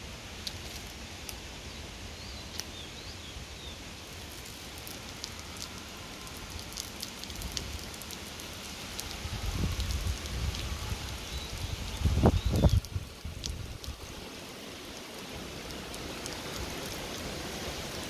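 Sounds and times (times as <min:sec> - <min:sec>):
wind buffeting microphone: 0:09.0 - 0:14.2.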